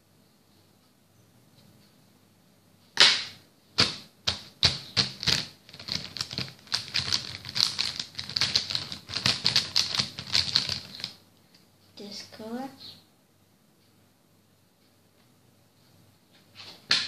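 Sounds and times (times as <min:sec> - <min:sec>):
marker pens clicking and clattering: 0:03.8 - 0:11.2.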